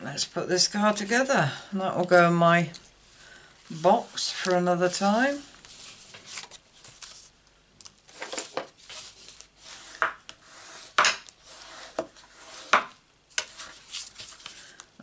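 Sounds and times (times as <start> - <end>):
paper rustling and scraping: 3.7 - 7.4, 8.1 - 14.8.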